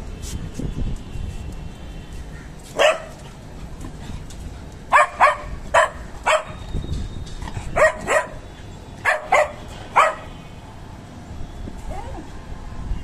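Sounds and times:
small dog barking: 2.8 - 3.2, 4.9 - 6.6, 7.8 - 8.4, 9.0 - 10.3.

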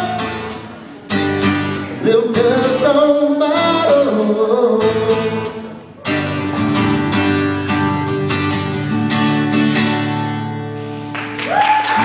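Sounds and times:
acoustic guitar strumming: 0.0 - 11.4
applause: 11.0 - 12.0.

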